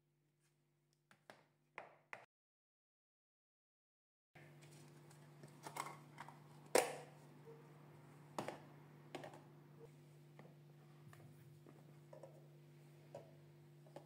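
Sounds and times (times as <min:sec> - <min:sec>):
low steady hum: 0:04.4 - 0:14.0.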